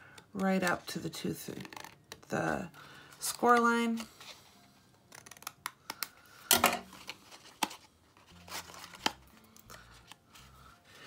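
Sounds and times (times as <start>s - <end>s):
paper rustling: 6.9s - 10.6s.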